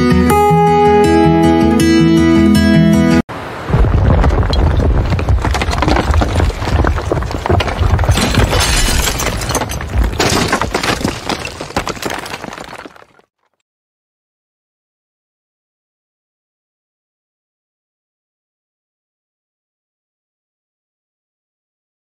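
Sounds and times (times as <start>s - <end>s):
crashing debris: 3.7s - 13.3s
shattering glass: 7.6s - 13.0s.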